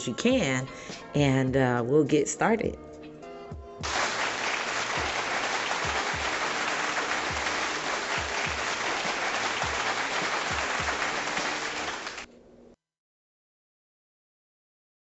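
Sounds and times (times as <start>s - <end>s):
music with deep kick drums: 3.5s - 3.9s, 7.3s - 7.6s
crowd applause: 3.8s - 12.3s.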